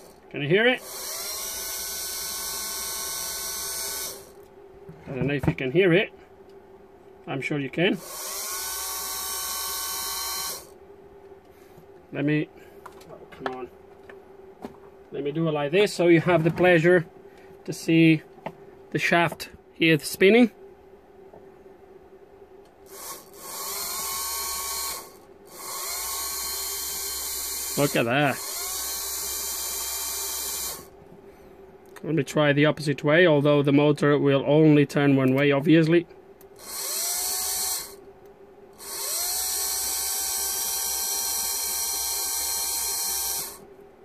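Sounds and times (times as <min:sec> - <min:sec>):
small electric pump motor whirring: 0:00.0 - 0:00.2, 0:00.8 - 0:04.4, 0:08.0 - 0:10.8, 0:22.9 - 0:31.0, 0:36.6 - 0:38.0, 0:38.8 - 0:43.7.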